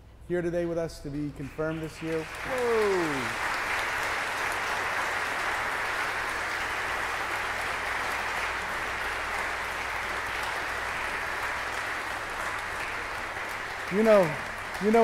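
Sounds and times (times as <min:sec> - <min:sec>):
congregation applauding: 0:01.4 - 0:15.0.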